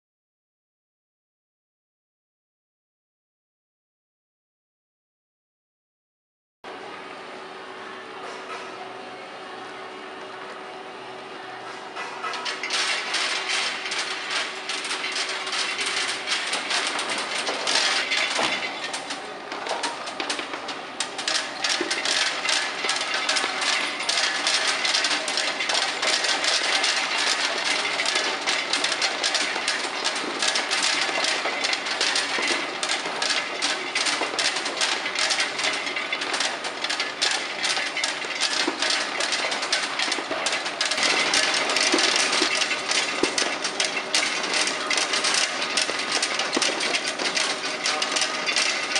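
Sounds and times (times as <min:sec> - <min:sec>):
hard sweets rattling in machine: 0:12.2 - 0:48.9.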